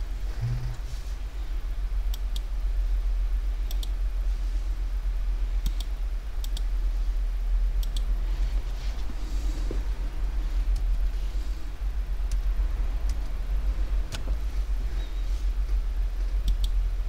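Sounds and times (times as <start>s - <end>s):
steady low hum: 0.0s - 17.0s
computer mouse buttons clicking: 3.7s - 4.0s, 16.4s - 16.8s.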